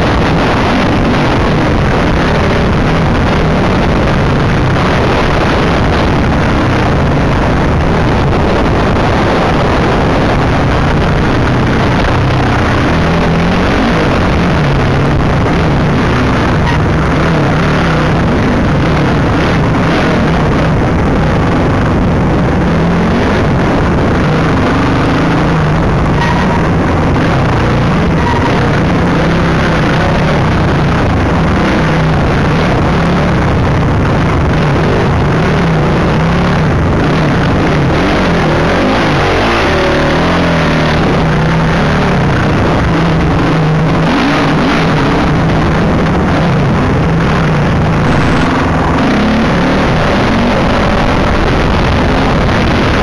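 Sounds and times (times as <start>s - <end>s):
dirt bike engine revving: 0.0s - 53.0s
wind rush over microphone: 0.0s - 53.0s.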